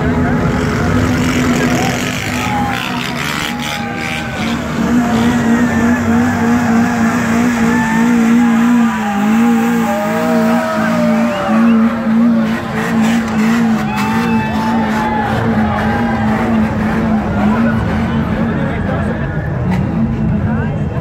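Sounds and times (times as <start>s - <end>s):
car engine at high revs: 0.0s - 21.0s.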